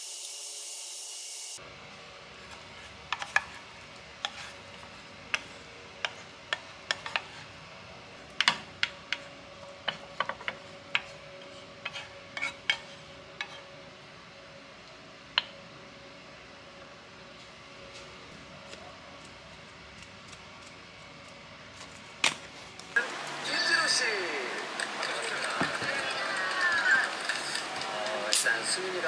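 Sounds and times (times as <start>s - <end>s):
faint steady hum: 1.6s - 29.0s
chopsticks scraping ceramic dish: 3.1s - 3.6s, 4.2s - 7.5s, 8.4s - 13.7s.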